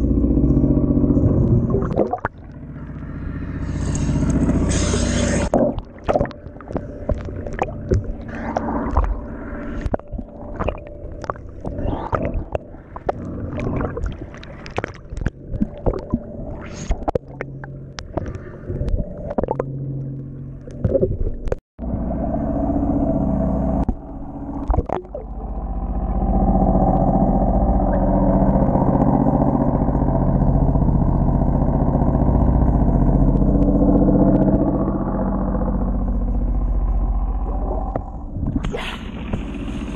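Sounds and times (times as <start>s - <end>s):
muffled underwater rumble: 0.0s - 39.9s
water splashing against boat hull: 4.2s - 21.6s.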